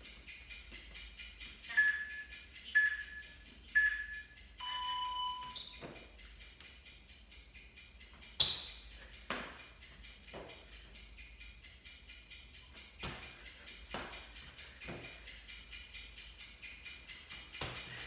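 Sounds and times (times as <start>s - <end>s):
faint background music: 0.0s - 18.0s
longer lower timer beep: 1.7s - 2.2s, 2.8s - 5.8s
short high timer beeps: 1.7s - 5.8s
hands slapping hard floor: 13.9s - 14.3s.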